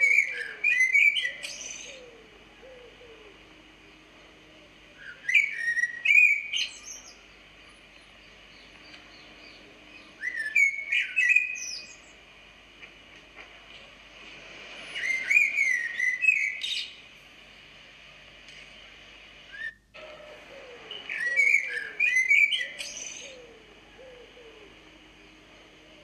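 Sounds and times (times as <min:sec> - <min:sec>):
bird chirping and whistling: 0:00.0 - 0:02.1, 0:05.0 - 0:07.2, 0:10.1 - 0:12.0, 0:15.0 - 0:16.9, 0:20.9 - 0:23.5.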